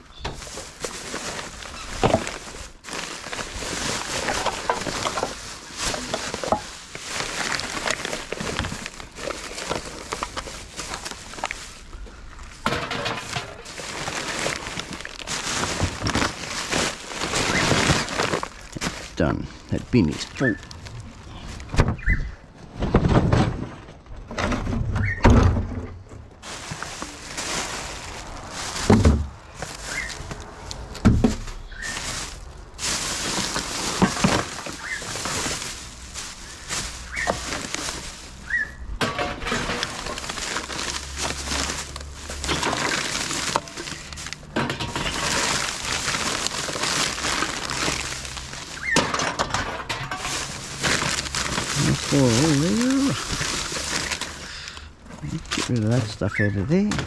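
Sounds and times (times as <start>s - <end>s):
plastic garbage bags rustling: 0.0s - 57.0s
plastic wheelie bin thuds: 28.7s - 29.7s, 31.0s - 31.5s.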